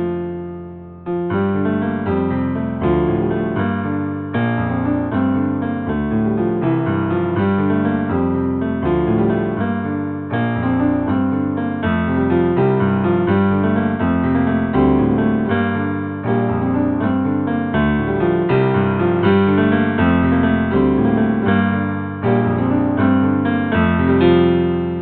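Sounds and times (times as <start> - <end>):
piano music: 0.0 - 25.0.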